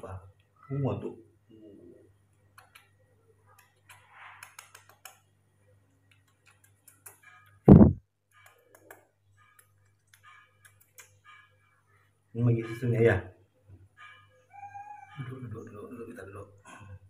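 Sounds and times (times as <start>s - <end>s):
faint clicks: 2.5s - 5.3s, 6.0s - 7.6s
loud thump: 7.7s - 8.0s.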